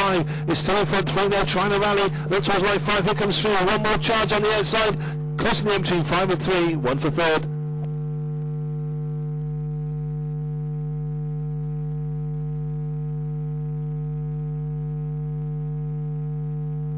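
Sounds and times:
electrical mains hum: 0.0s - 16.9s.

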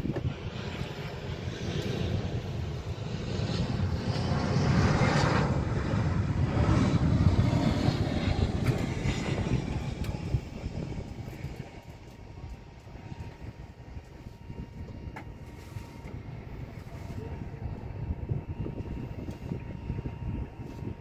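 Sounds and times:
helicopter engine rumble: 0.0s - 21.0s.

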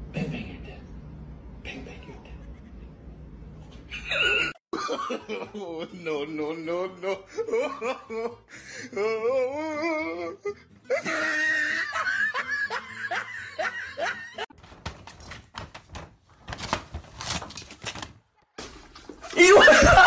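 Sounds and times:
person laughing: 2.0s - 3.1s, 7.0s - 14.5s, 19.3s - 20.0s
cat clawing paper screen: 14.6s - 18.2s.

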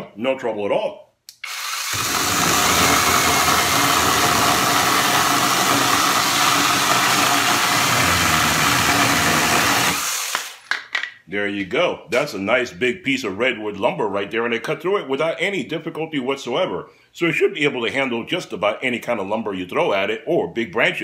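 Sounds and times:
cordless chainsaw cutting timber: 1.4s - 10.6s.

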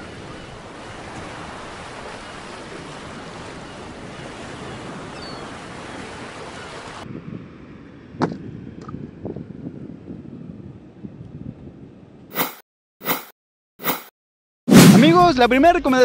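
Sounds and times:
ocean waves breaking on beach: 0.0s - 7.1s.

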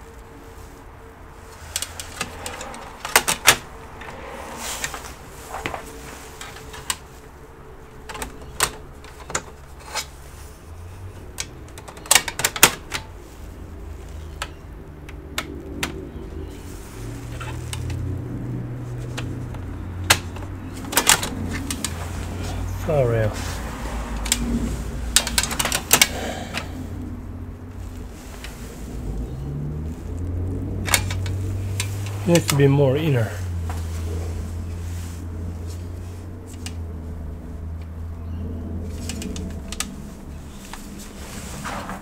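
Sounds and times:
low steady hum: 0.0s - 42.0s
metal clicks and knocks: 1.8s - 3.6s, 11.3s - 13.1s, 19.0s - 22.0s, 25.1s - 26.6s.

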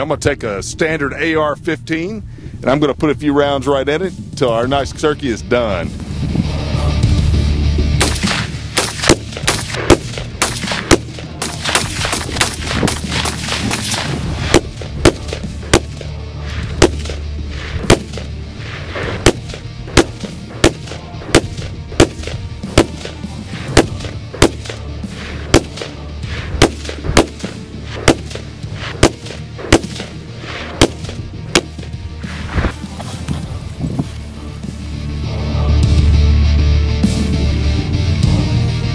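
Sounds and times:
background music: 0.0s - 38.9s
rifle gunshots: 8.0s - 32.0s.

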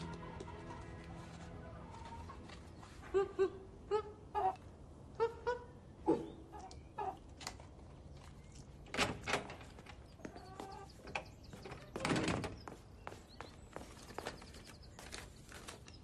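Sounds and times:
hen clucking: 3.0s - 7.2s, 10.2s - 12.0s.

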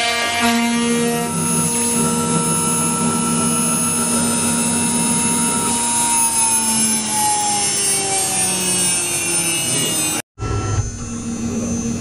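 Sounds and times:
cnc router spindle whine: 0.0s - 12.0s.

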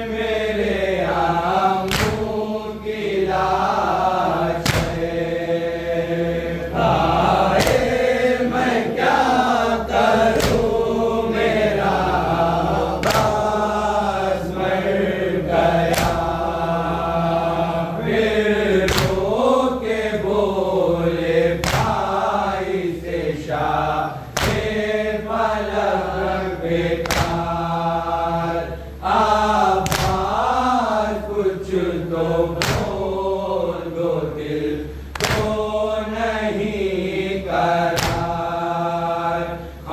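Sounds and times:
men chanting in chorus: 0.0s - 39.9s
sharp rhythmic strikes: 1.7s - 3.0s, 3.6s - 14.2s, 15.7s - 17.6s, 18.8s - 19.5s, 21.6s - 22.6s, 24.2s - 25.8s, 26.9s - 28.4s, 29.0s - 31.3s, 32.5s - 33.3s, 35.1s - 36.0s, 37.8s - 38.6s.

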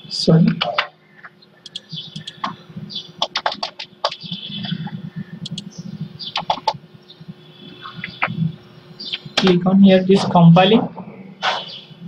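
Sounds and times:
keyboard key taps: 5.4s - 5.7s.

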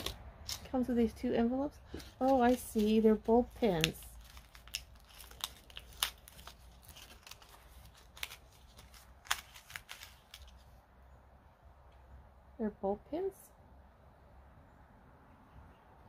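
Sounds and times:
paper envelope crinkling: 0.0s - 0.8s, 1.9s - 10.8s.

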